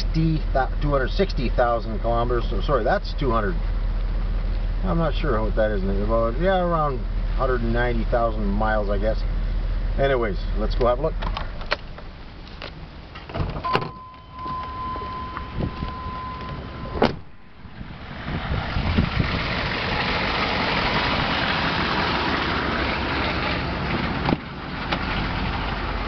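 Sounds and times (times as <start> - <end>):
diesel engines idling: 0.0 - 26.0
truck door clicking open: 11.2 - 17.4
door shutting with thud: 13.3 - 14.1, 16.9 - 17.4
electronic warning tone: 13.6 - 17.1.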